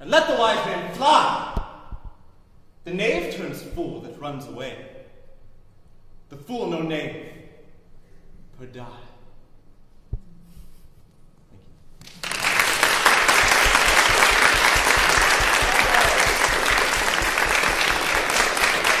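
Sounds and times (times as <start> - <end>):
audience applauding: 12.0 - 19.0.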